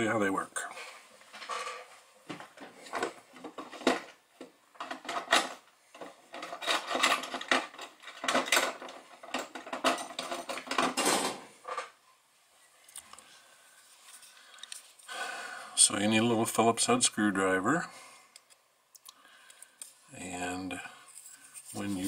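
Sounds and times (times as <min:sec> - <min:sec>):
rummaging among tools: 0:01.2 - 0:12.0, 0:21.0 - 0:22.0.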